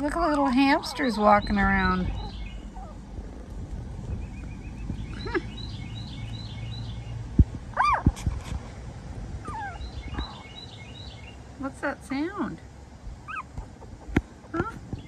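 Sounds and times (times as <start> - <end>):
birds chirping: 0.0 - 8.1, 9.4 - 15.0
puppies whimpering: 0.4 - 3.5, 9.4 - 10.5, 13.3 - 13.8.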